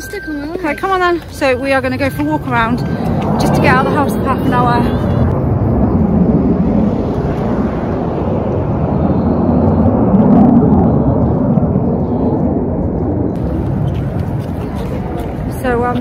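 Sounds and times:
wind rumbling on microphone: 0:01.4 - 0:16.0.

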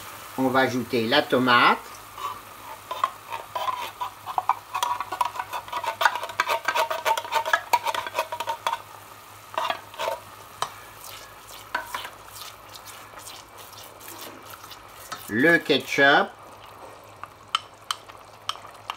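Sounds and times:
sauce sizzling: 0:00.0 - 0:18.9
spoon scraping a saucepan: 0:02.2 - 0:08.8, 0:09.5 - 0:15.4.

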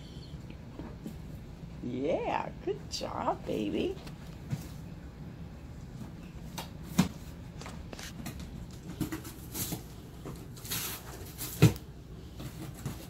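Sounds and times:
cardboard crinkles and scrapes: 0:07.1 - 0:13.0.

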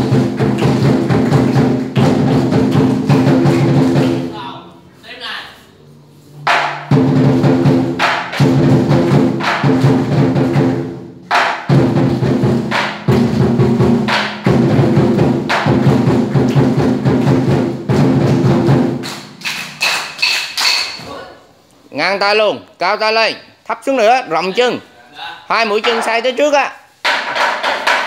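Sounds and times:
drum beating: 0:00.0 - 0:04.7, 0:06.3 - 0:21.1, 0:27.0 - 0:28.0
cymbals clashing: 0:06.3 - 0:17.7, 0:18.7 - 0:21.1.

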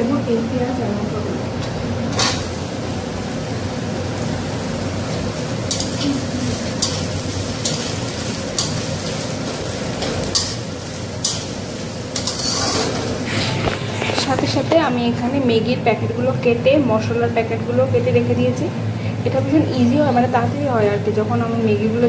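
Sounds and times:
onions sizzling in hot oil: 0:02.0 - 0:15.3
metal spatula scraping pan: 0:12.2 - 0:14.6.

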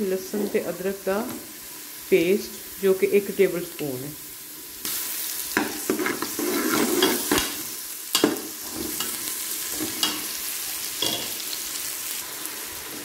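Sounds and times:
food sizzling in hot oil: 0:00.0 - 0:13.0
spatula clinking on metal pot: 0:11.0 - 0:11.4.

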